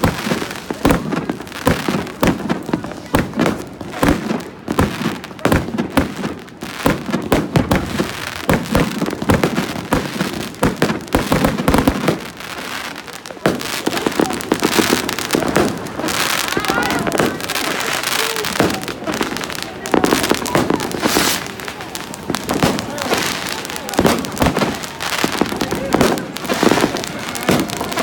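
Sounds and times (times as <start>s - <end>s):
fireworks bangs and crackling: 0.0s - 28.0s.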